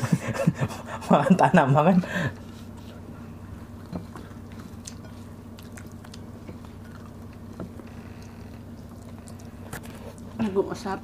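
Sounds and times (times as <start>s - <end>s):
close chewing: 3.6s - 10.4s.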